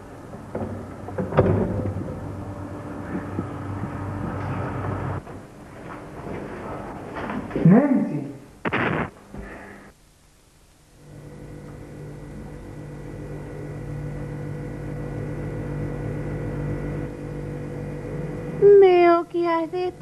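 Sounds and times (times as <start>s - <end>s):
drone of held tones: 11.0s - 18.8s.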